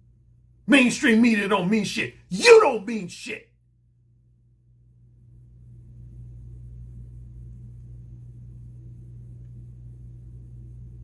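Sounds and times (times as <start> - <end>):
low hum: 3.6 - 11.0.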